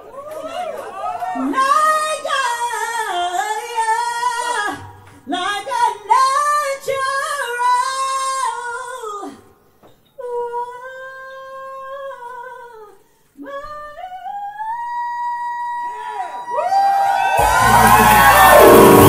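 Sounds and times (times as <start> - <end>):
woman singing into a microphone: 1.4 - 9.5, 10.2 - 15.9.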